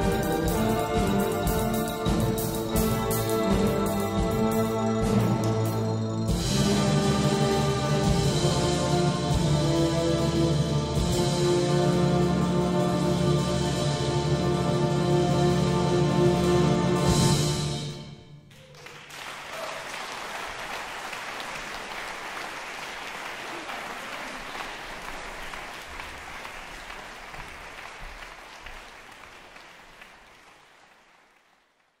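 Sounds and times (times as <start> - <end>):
audience applauding: 18.5 - 32.0.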